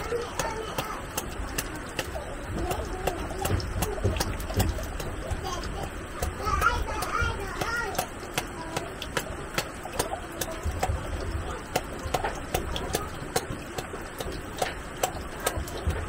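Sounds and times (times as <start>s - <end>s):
faint voices: 0.0s - 16.0s.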